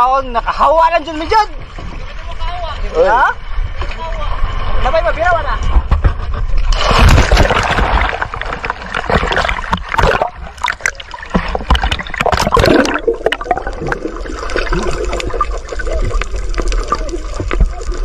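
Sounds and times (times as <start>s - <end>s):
sea water splashing: 6.4s - 18.0s
muffled underwater gurgling: 8.4s - 18.0s
small crackles and clicks: 14.4s - 18.0s.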